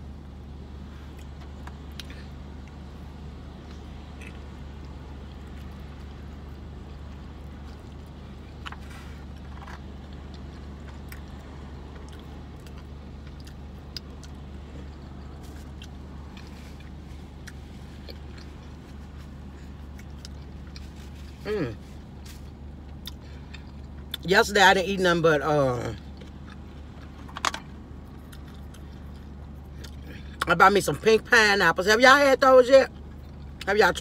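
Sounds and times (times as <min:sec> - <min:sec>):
low hum in car cabin: 0:00.0 - 0:34.0
chewing and biting: 0:03.6 - 0:21.4, 0:22.2 - 0:24.3, 0:25.8 - 0:30.5.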